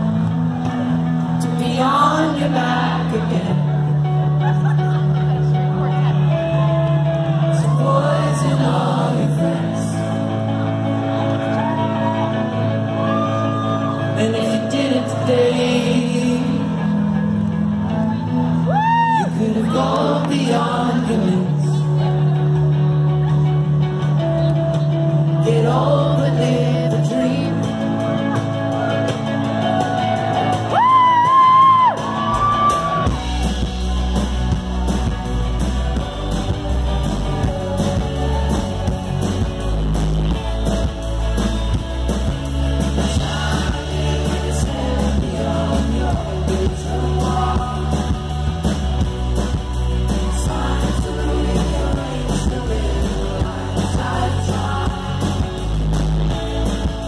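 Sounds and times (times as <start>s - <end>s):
bass guitar: 0.0s - 57.0s
drums: 0.0s - 57.0s
electric guitars: 0.0s - 57.0s
keyboard: 0.0s - 57.0s
person singing: 1.4s - 4.2s, 7.3s - 10.6s, 12.1s - 17.0s, 18.7s - 22.2s, 25.3s - 28.6s, 42.9s - 49.2s, 50.0s - 55.7s.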